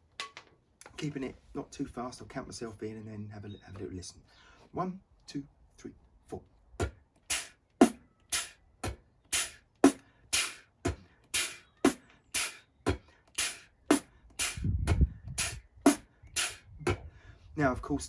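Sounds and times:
beatbox groove: 6.8s - 17.1s
hissing beatbox cymbal sound: 7.3s - 12.7s, 13.3s - 17.0s.

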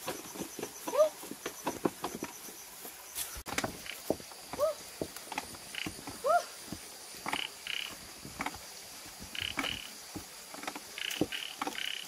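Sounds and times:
hands and feet scuffing on rock: 0.0s - 7.0s.

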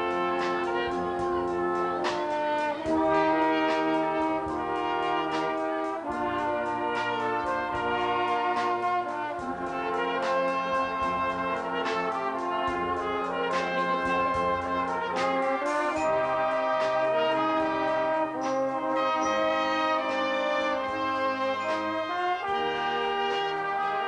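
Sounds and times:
brass band playing chords: 0.0s - 24.0s.

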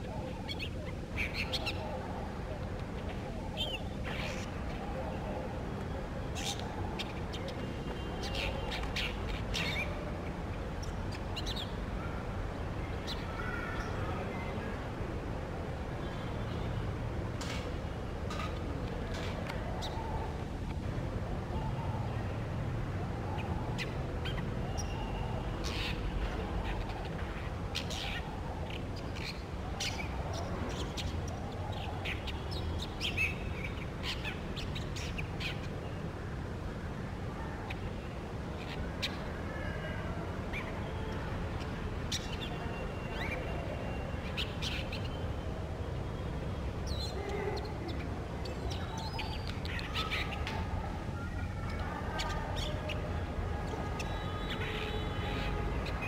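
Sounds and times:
bird chirping: 23.3s - 36.1s, 46.8s - 53.1s, 53.7s - 56.0s.

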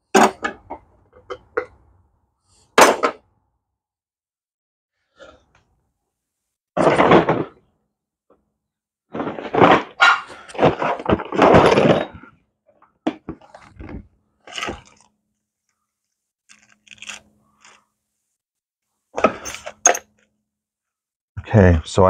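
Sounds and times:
small hardware rummaged through: 9.1s - 12.3s, 13.1s - 15.2s, 16.5s - 17.8s, 19.2s - 20.4s.

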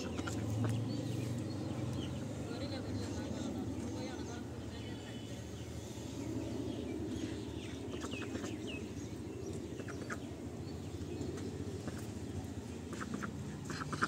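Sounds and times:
ducks quacking: 0.0s - 0.9s, 7.9s - 8.7s, 12.8s - 14.0s
low background rumble: 0.0s - 14.0s.

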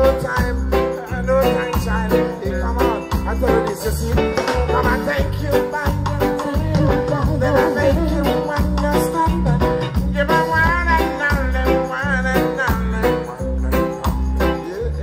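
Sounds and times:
live reggae band: 0.0s - 15.0s
man singing: 0.0s - 15.0s.

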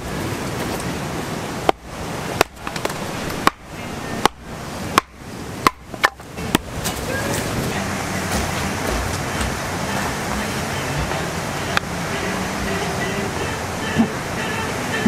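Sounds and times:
steady background hiss: 0.0s - 15.0s
sharp chopping strikes: 2.4s - 3.6s, 4.2s - 6.7s.

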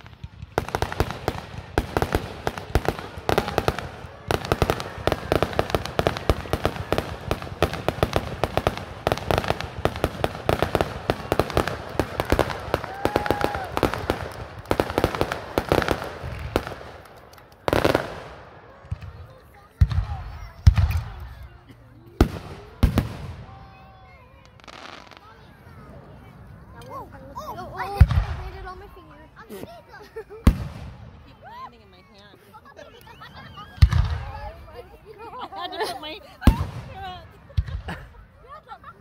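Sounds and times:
fireworks crackling: 0.0s - 39.0s
loud firework burst: 0.5s - 17.0s.

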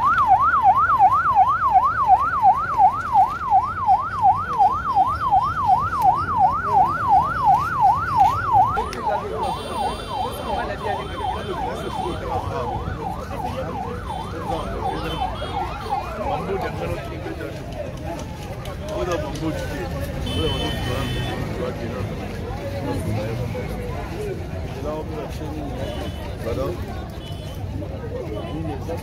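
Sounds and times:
ambulance siren wailing: 0.0s - 17.6s.

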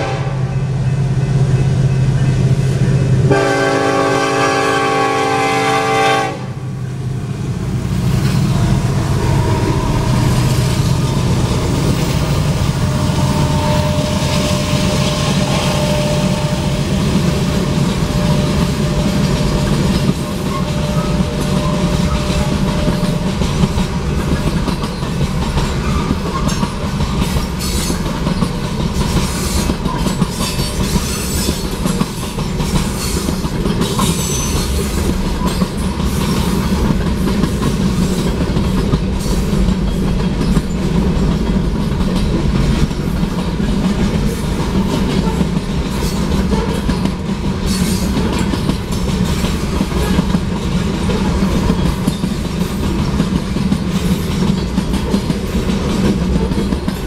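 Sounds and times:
train horn: 0.0s - 0.8s, 3.2s - 6.8s, 9.0s - 10.3s, 12.7s - 23.4s, 45.0s - 45.6s, 46.4s - 46.9s
diesel locomotives rumbling: 0.0s - 57.0s
train wheels clattering on rails: 0.0s - 57.0s.

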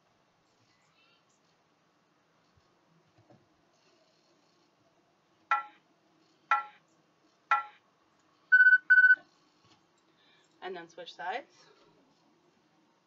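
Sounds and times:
timer beeps: 5.5s - 5.8s, 6.5s - 6.8s, 7.5s - 7.8s, 8.5s - 9.2s.

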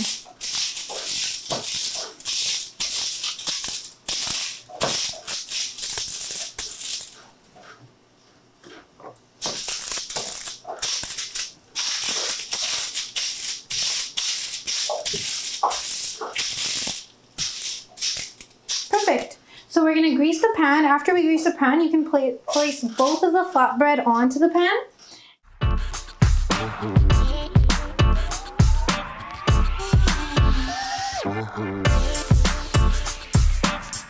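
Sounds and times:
aluminium foil crinkling: 0.0s - 7.4s, 9.4s - 19.4s, 22.5s - 23.4s.

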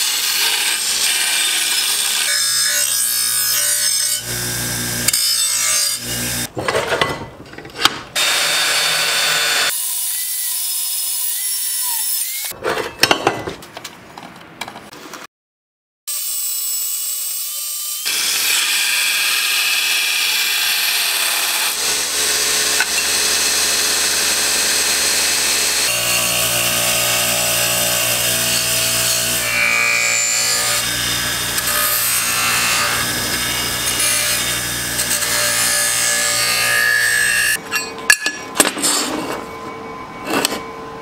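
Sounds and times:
belt sander grinding steel: 0.0s - 6.5s, 18.0s - 38.2s
bench grinder with motor hum: 0.0s - 6.5s, 18.0s - 37.6s
metal-cutting saw: 0.0s - 6.5s, 8.2s - 12.6s, 16.1s - 39.0s.

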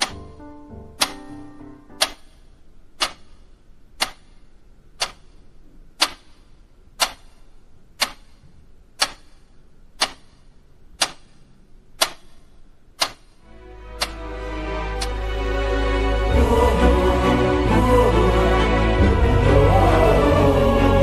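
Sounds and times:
wall clock ticking: 0.0s - 13.4s, 14.0s - 14.3s, 15.0s - 15.2s.

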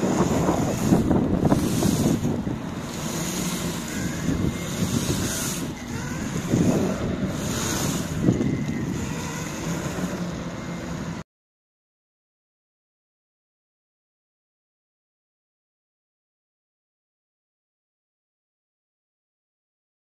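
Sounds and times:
wind buffeting microphone: 0.0s - 10.4s
skateboard wheels rolling on asphalt: 0.0s - 11.2s.

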